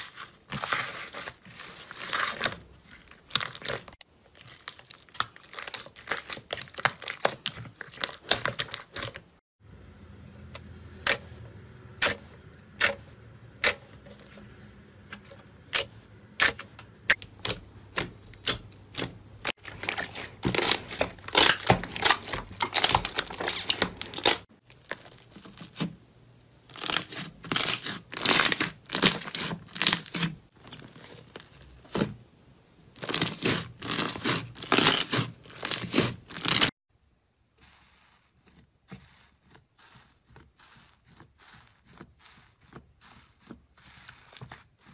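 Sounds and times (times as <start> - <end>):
slime popping and crackling: 2.0 - 9.2, 17.4 - 25.8, 33.0 - 36.7
hands squeezing slime: 37.6 - 44.9.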